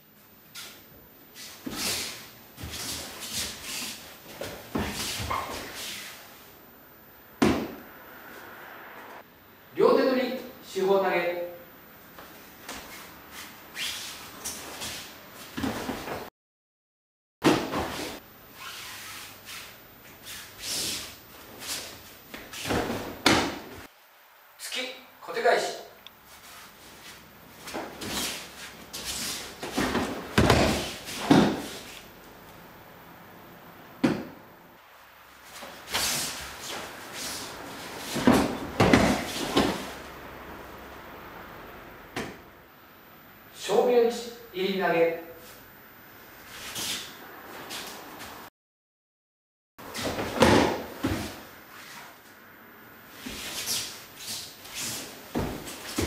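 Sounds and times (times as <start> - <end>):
bare feet sliding on mats: 1.4 - 6.3, 26.2 - 32.1, 35.4 - 40.1, 53.2 - 56.0
body thumping on a mat: 7.4 - 7.8, 29.6 - 31.8, 38.1 - 39.9, 49.9 - 51.4, 55.3 - 56.0.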